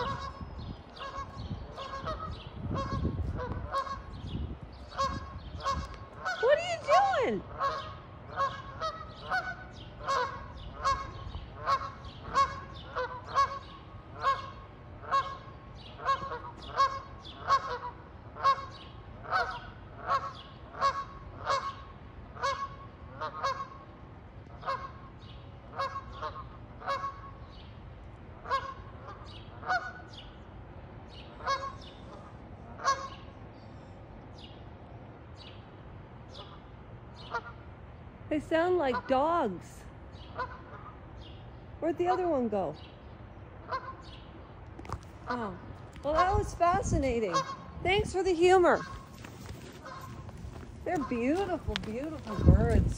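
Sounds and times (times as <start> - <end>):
geese honking: 0.0 - 27.6, 28.4 - 30.2, 31.3 - 33.3, 36.3 - 37.7, 40.2 - 41.1, 43.6 - 44.2, 44.8 - 52.9.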